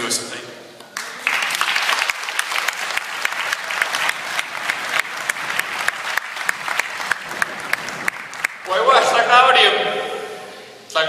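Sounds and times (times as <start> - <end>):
close sharp hand claps: 0.8 - 8.8
audience applauding: 0.9 - 9.2.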